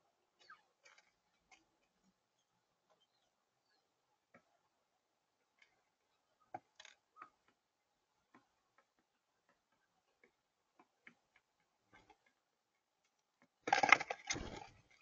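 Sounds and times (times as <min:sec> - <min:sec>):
dove pecking seed: 0:05.4 - 0:15.0
wings flapping: 0:13.7 - 0:15.0.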